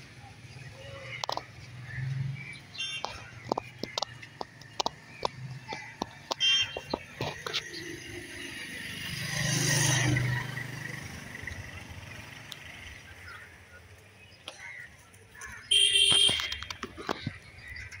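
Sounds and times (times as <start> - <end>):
vehicle passing by: 7.6 - 13.6
short horn beep: 15.7 - 16.7.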